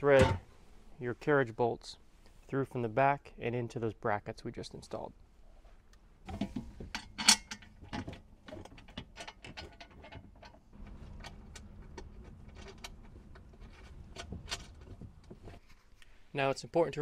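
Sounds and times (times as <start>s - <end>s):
low steady hum: 5.1s - 16.6s
metal bolts clinking and rattling: 6.3s - 15.6s.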